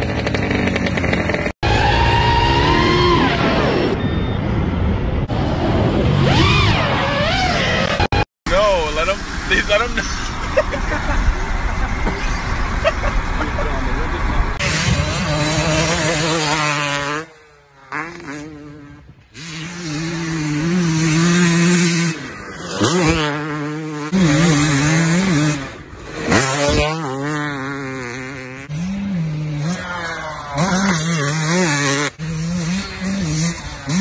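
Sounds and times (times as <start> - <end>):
dirt bike engine revving: 0.0 - 4.1, 5.3 - 34.0.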